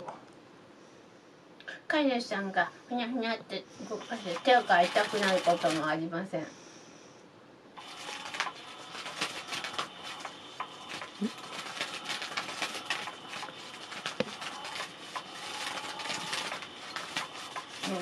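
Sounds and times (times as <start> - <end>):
faint motor hum: 0.0 - 18.0
toy scratchy rustling and clicking: 4.0 - 6.0, 7.8 - 18.0.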